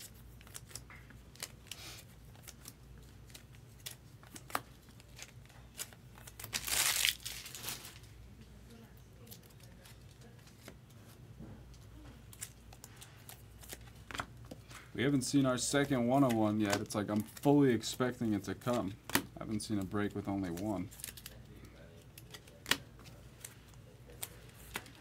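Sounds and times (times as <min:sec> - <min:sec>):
wrapper tearing with crinkle: 0:00.0 - 0:08.1, 0:12.3 - 0:14.2, 0:20.4 - 0:21.4.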